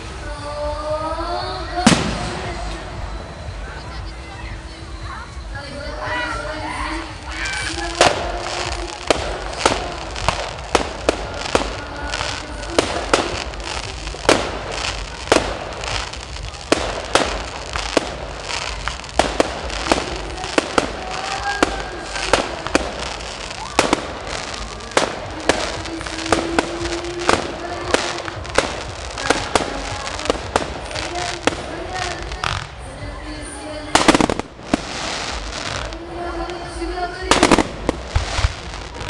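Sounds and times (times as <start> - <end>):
fireworks crackling: 0.0 - 39.0.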